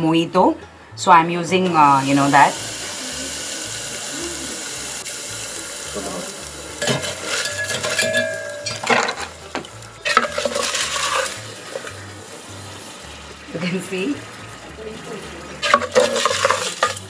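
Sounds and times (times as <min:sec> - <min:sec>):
liquid nitrogen sizzling: 0:01.5 - 0:17.0
spatula scraping a pot: 0:10.0 - 0:12.0, 0:15.6 - 0:17.0.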